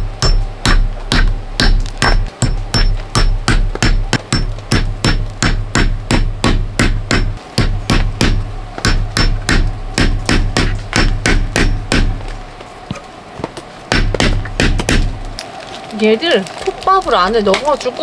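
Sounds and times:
hammer striking steel stakes: 0:00.0 - 0:12.4, 0:13.9 - 0:15.2.

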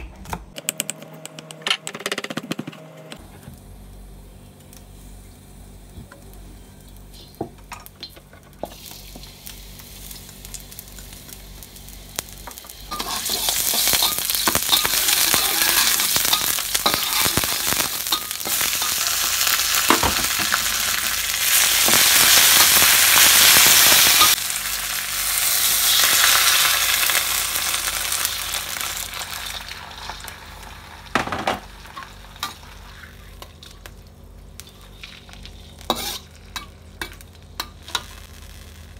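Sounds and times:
vegetables sizzling in a wok: 0:03.2 - 0:38.9
metal spatula scraping pan: 0:34.6 - 0:37.2.

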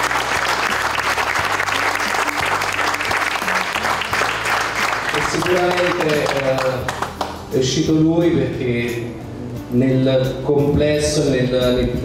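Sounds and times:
audience applauding: 0:00.0 - 0:07.4
background music: 0:00.0 - 0:12.0.

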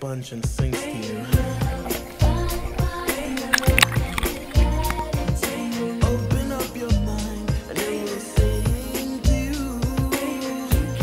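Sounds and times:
song with drum beat and bass: 0:00.4 - 0:11.0.

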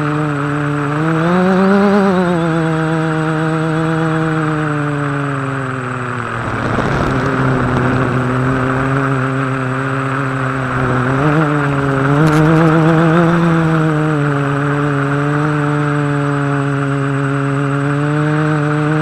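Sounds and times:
drone propellers whirring: 0:00.0 - 0:19.0
rush of air noise: 0:06.1 - 0:09.4.

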